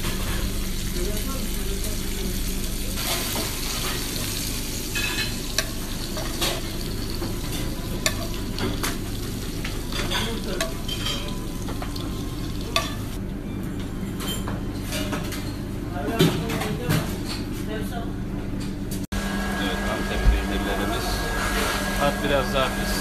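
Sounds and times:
meat sizzling in oil: 0.3 - 13.2.

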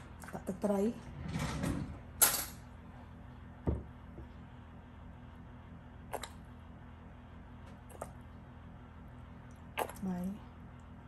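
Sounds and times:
low steady hum: 0.0 - 11.0
dull knock: 3.6 - 4.0.

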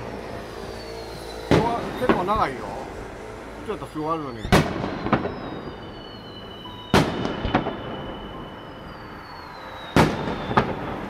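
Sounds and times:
high falling whistles: 0.0 - 2.5, 3.9 - 11.0
firework crack: 0.0 - 11.0
firework shells booming: 1.4 - 3.3, 4.4 - 9.0, 9.8 - 11.0.

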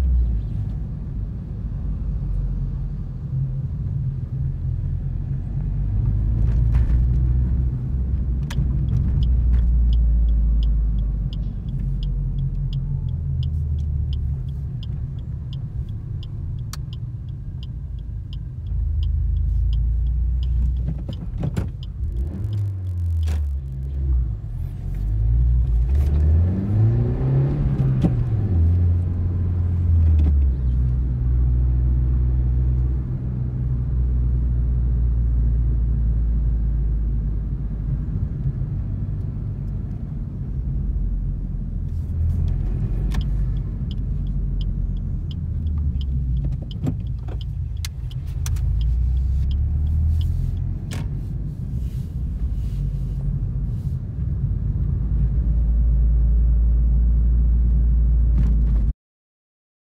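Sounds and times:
car engine from inside cabin: 0.0 - 58.9
turn indicator ticking: 8.4 - 23.8, 42.4 - 51.5.

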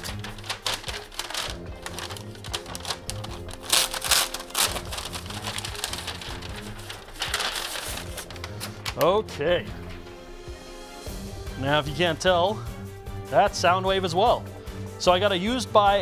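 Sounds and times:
envelope crinkling and rustling: 0.0 - 9.2
background music: 0.0 - 16.0.

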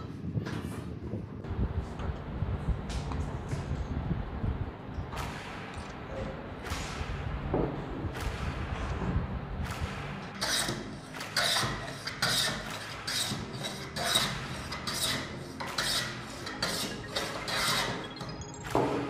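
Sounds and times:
hand plane shaving wood: 10.4 - 18.1.

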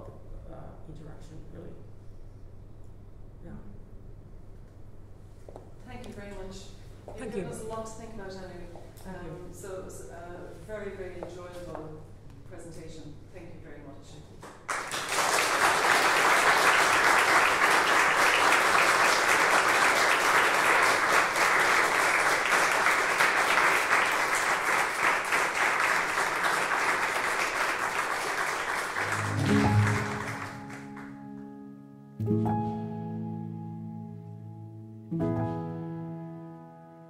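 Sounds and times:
audience applauding: 14.5 - 31.3
slow piano chords: 29.0 - 37.0.

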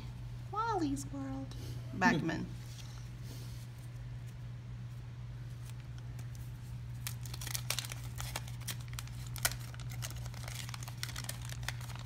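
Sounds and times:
steady low hum: 0.0 - 12.0
cards and paper crinkling: 5.4 - 12.0.

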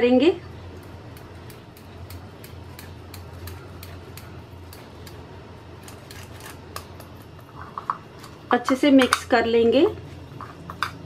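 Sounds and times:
cheese grating on metal grater: 5.8 - 6.9.

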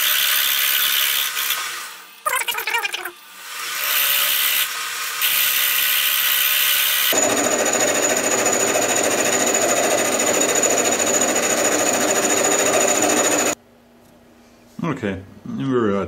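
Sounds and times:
metal lathe machining: 7.1 - 13.6.

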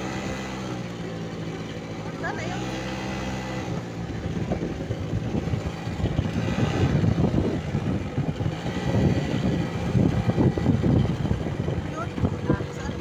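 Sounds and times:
wind buffeting microphone: 3.7 - 13.0.

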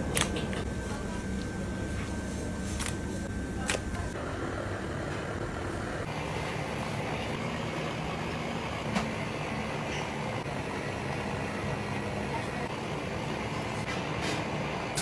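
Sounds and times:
commercial kitchen hum: 0.0 - 15.0.

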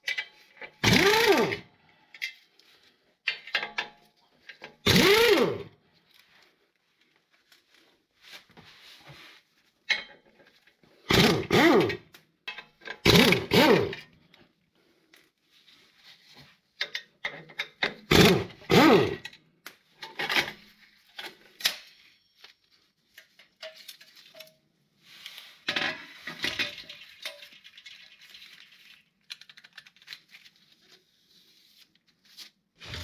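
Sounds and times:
power ratchet whirring: 0.8 - 1.6, 4.8 - 5.7, 11.1 - 12.0, 13.0 - 14.0, 18.1 - 19.2.

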